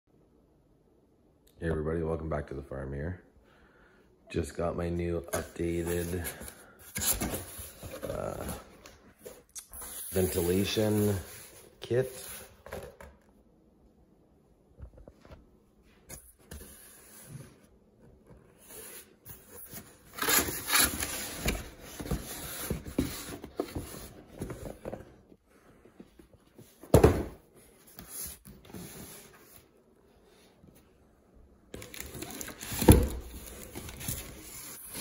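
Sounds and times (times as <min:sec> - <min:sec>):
cardboard boxes scraping: 0:09.8 - 0:12.6, 0:18.5 - 0:25.2
box thumping on table: 0:26.9 - 0:27.4.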